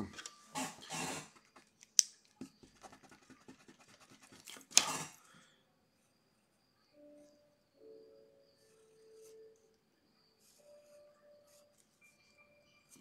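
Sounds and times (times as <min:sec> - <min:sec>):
pencil on paper: 0:02.4 - 0:05.2, 0:10.4 - 0:13.0.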